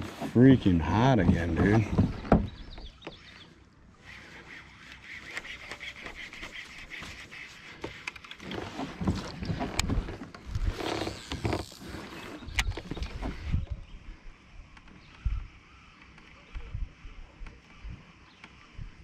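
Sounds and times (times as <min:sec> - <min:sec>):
water lapping against kayak hull: 0:00.0 - 0:13.6
fishing gear clicks and knocks: 0:07.8 - 0:13.4.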